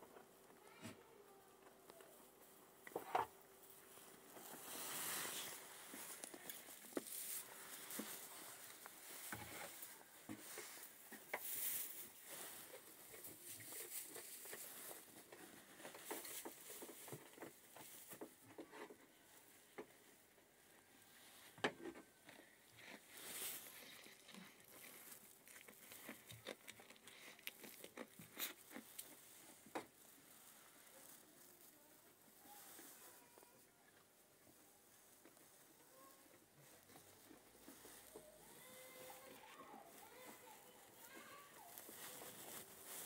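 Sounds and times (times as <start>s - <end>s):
hay rustling: 3.6s - 18.2s, 23.1s - 23.8s, 28.4s - 33.6s, 34.2s - 43.0s.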